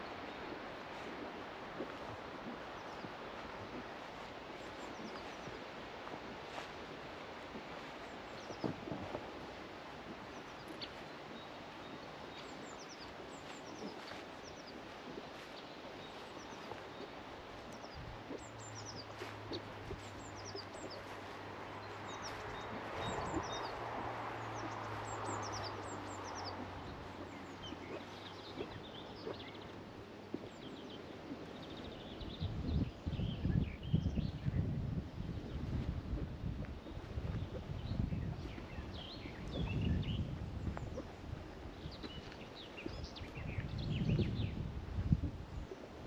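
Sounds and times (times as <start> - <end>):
small birds chirping and singing: 10.2 - 34.7, 36.8 - 45.7.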